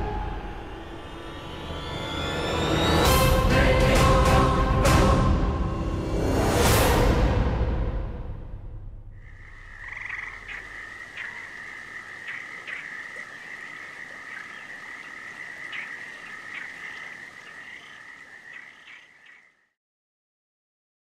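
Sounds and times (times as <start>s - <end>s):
frogs calling: 9.2s - 19.7s.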